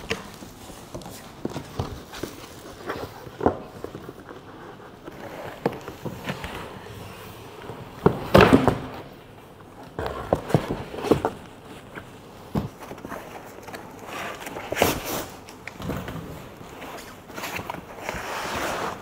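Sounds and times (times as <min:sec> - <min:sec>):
box scraping against cardboard: 0:16.1 - 0:19.0.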